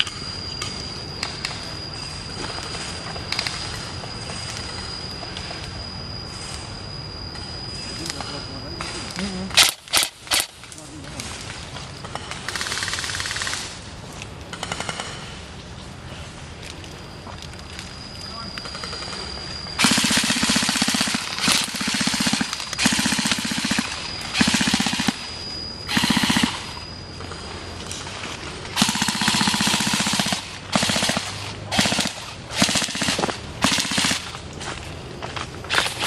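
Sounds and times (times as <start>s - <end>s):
airsoft rifles firing bursts: 9.6s - 10.6s, 12.0s - 13.8s, 14.5s - 15.3s, 19.8s - 27.5s, 28.7s - 34.4s.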